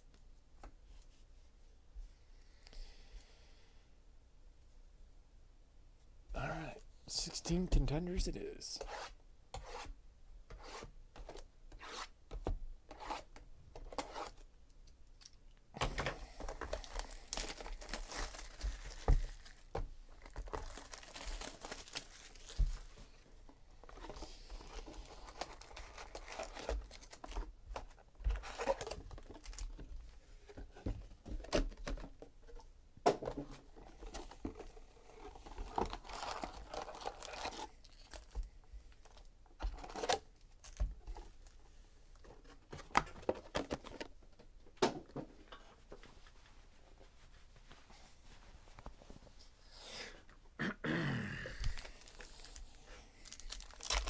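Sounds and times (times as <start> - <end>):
foil packs rustling and tapping: 16.4 - 23.0, 23.8 - 32.1, 53.2 - 54.0
plastic shrink wrap crinkling: 16.4 - 23.0, 23.8 - 27.5, 35.3 - 38.4, 51.7 - 54.0.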